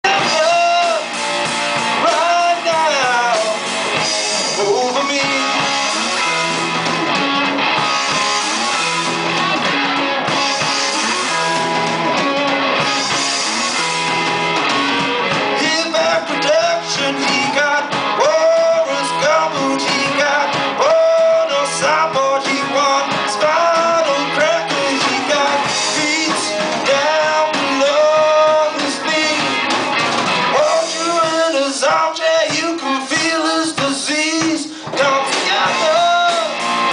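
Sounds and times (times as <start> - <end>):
man singing: 0.0 - 1.2, 1.9 - 6.0, 15.5 - 29.7, 30.4 - 36.6
drum kit: 0.0 - 36.9
electric guitars: 0.0 - 36.9.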